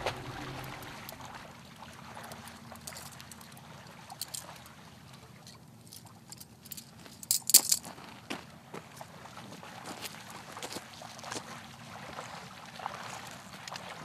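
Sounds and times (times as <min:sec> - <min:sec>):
scuffs on stony ground: 0:06.7 - 0:11.4.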